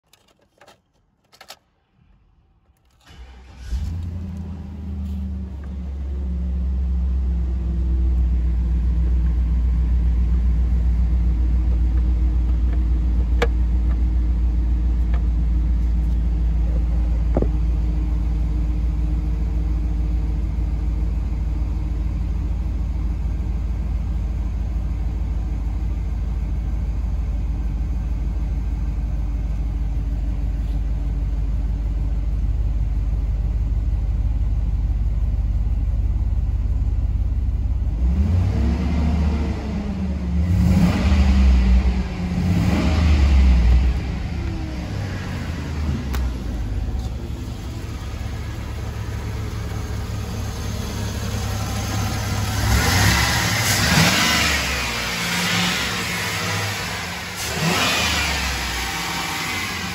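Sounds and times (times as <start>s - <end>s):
car engine cranking and idling: 0.0s - 59.9s.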